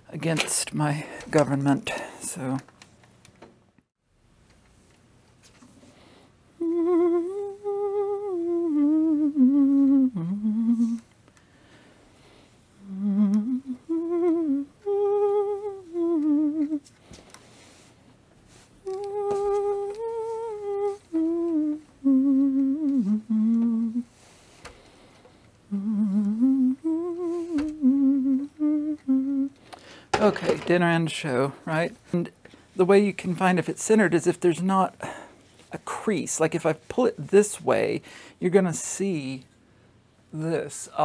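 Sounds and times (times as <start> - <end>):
person humming a slow tune: 6.6 - 11.1, 12.8 - 16.9, 18.8 - 24.4, 25.7 - 29.6.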